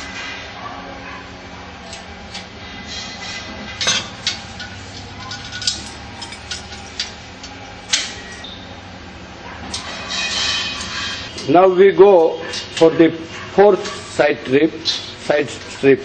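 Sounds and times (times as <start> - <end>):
metal strips and bolts clinking: 1.9 - 8.4.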